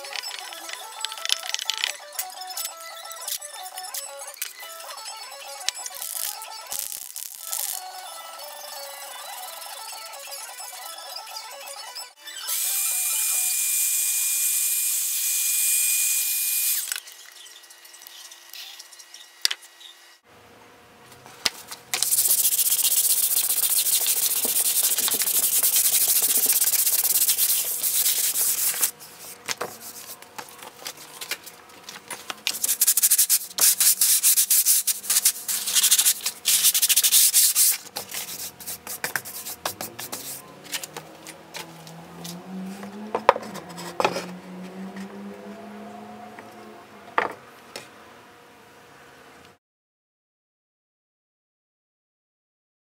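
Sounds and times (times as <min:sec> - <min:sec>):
heat gun hissing: 0:22.0 - 0:28.9
hand-sanding wood: 0:22.0 - 0:30.2, 0:32.6 - 0:40.9, 0:43.4 - 0:44.2.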